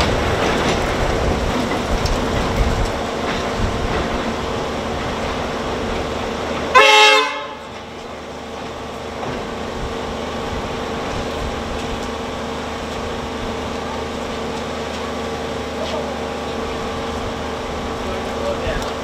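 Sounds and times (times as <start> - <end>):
diesel locomotive engine drone: 0.0 - 19.0
locomotive horn blast: 6.7 - 7.8.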